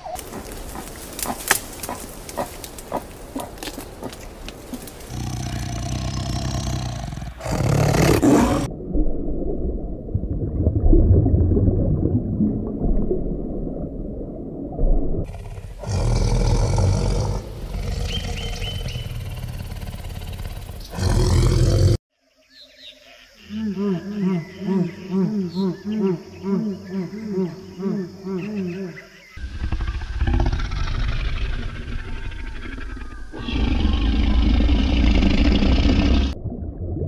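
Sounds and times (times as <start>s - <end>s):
animal roars and growls: 0.2s - 8.7s, 15.2s - 22.0s, 28.8s - 36.4s.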